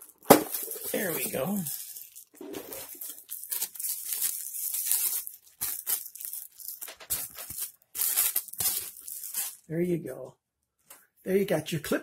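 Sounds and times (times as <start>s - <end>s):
plastic bag crinkling and tearing: 0.0s - 9.7s.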